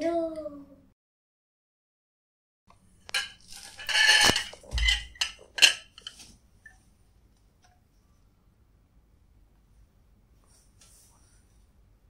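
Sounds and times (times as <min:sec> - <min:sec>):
glass clinking on a plate: 0:03.1 - 0:06.2
glass scraping on a plate: 0:03.1 - 0:06.2.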